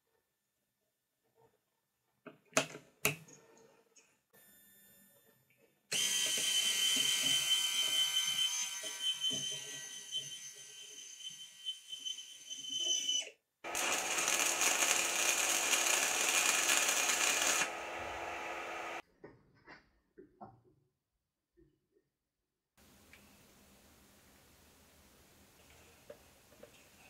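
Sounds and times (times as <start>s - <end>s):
small motor whining: 13.0s - 19.0s
welding arc hissing and crackling: 13.7s - 19.0s.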